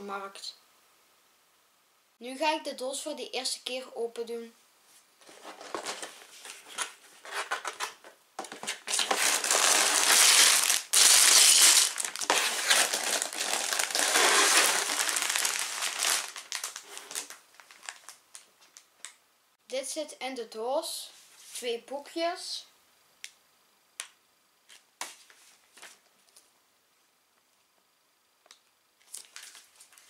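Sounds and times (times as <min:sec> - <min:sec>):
plastic bags rustling: 0:05.2 - 0:18.9.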